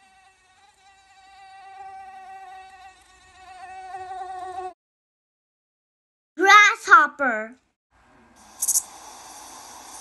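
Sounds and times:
mosquito whining in flight: 0:00.0 - 0:04.8.

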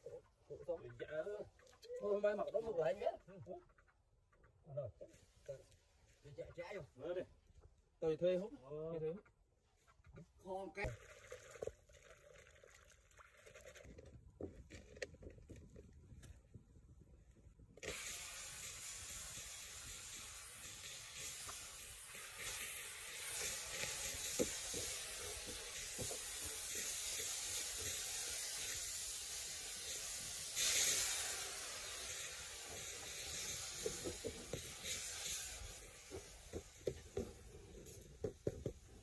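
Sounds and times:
food sizzling in a wok: 0:17.8 - 0:37.2.

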